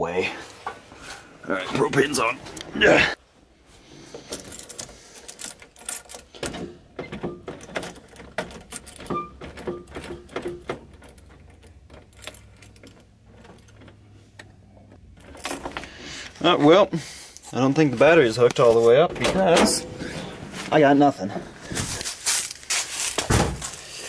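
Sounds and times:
keys jangling and clicking: 4.3s - 6.4s, 7.6s - 14.0s.

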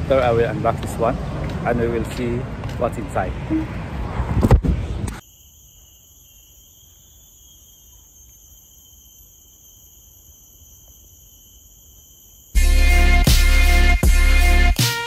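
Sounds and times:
high-pitched insect drone: 5.2s - 14.8s.

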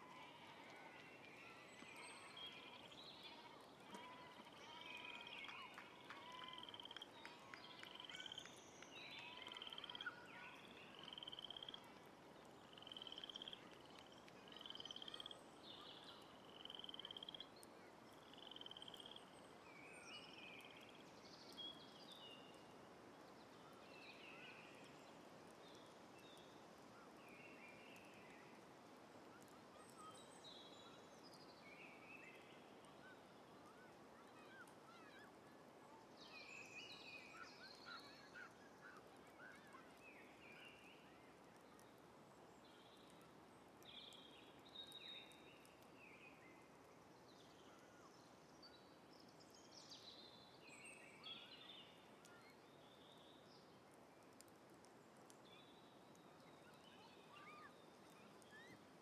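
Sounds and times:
faint chirps: 0.1s - 22.7s.

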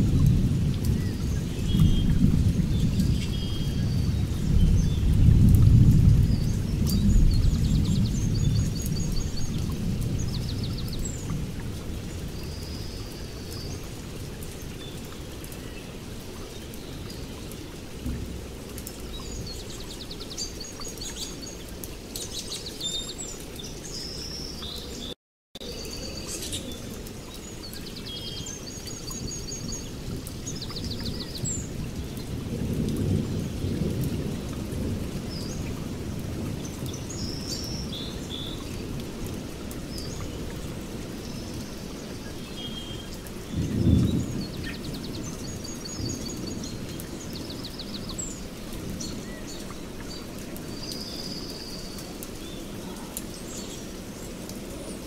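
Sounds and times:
rolling thunder: 0.0s - 12.9s, 29.2s - 37.8s, 43.4s - 47.4s
steady rain: 0.0s - 55.0s
birds chirping and trilling: 0.9s - 5.2s, 6.2s - 11.4s, 19.0s - 32.4s, 36.5s - 55.0s.

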